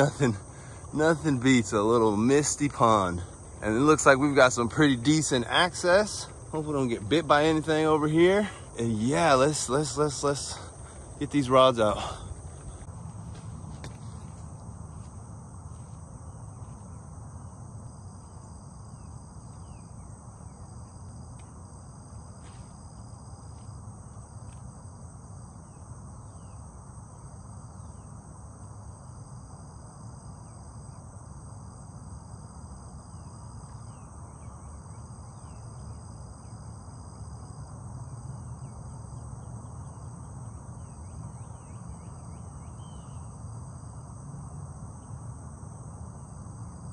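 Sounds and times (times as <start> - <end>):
insect trills: 0.0 - 46.9.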